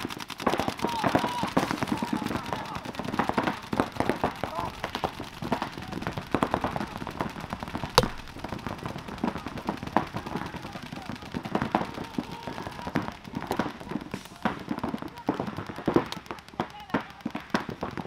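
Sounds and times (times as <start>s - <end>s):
paintball markers firing: 0.0s - 18.0s
loud sharp crack: 1.5s - 11.4s.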